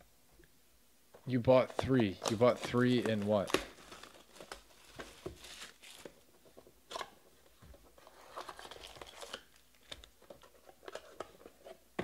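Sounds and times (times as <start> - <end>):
card packs rustling and crinkling: 1.4 - 11.8.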